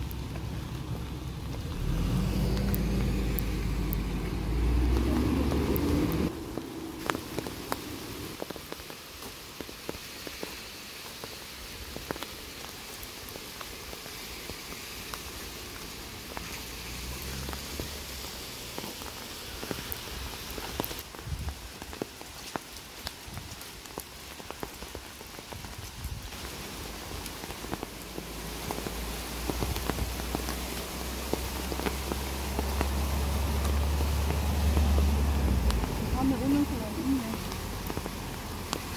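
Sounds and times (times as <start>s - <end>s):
low rumble: 0.0s - 8.4s, 31.8s - 38.5s
rain on wet road and foliage: 0.0s - 38.9s
water dripping: 0.0s - 38.9s.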